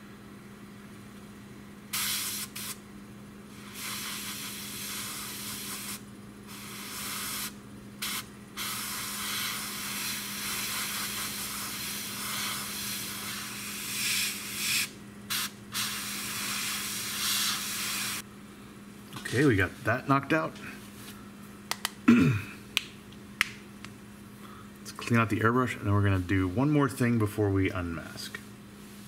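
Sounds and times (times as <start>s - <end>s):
steady low hum: 0.0s - 29.0s
airbrush hissing: 1.9s - 2.8s, 3.5s - 18.2s.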